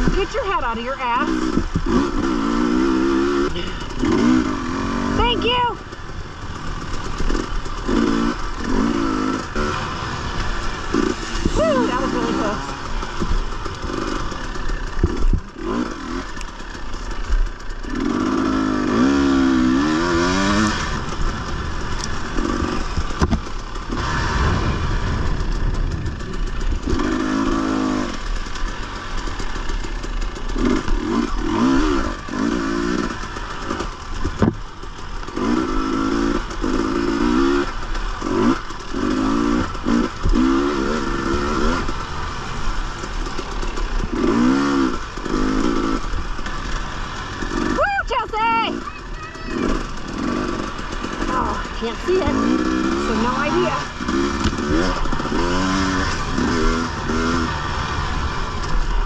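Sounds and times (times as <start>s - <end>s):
dirt bike engine revving: 0.0s - 59.0s
sharp knocks and rattles: 1.3s - 3.2s, 5.8s - 24.0s, 25.2s - 47.7s.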